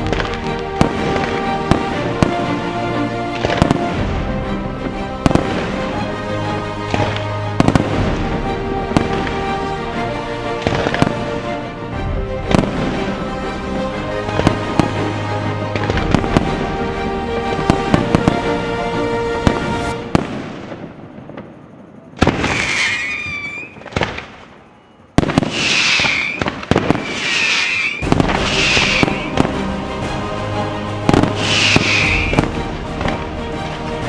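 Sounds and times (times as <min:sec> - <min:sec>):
fireworks bangs and bursts: 0:00.0 - 0:02.6, 0:03.3 - 0:04.3, 0:05.2 - 0:05.9, 0:06.9 - 0:09.4, 0:10.6 - 0:11.3, 0:12.5 - 0:13.2, 0:15.8 - 0:16.6, 0:22.2 - 0:24.5, 0:25.2 - 0:29.8, 0:31.1 - 0:33.4
music with sustained notes: 0:00.0 - 0:22.0, 0:27.7 - 0:34.0.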